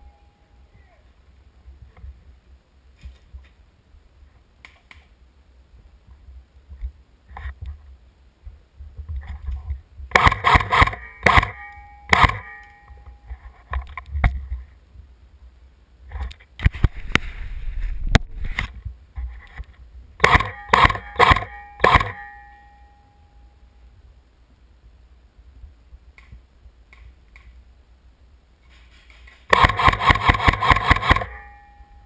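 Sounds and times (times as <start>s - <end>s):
airsoft rifle shots: 10.1s - 12.7s, 20.2s - 22.4s, 29.5s - 31.8s
short ringing tone: 11.0s - 13.4s, 20.4s - 23.7s, 30.7s - 32.0s.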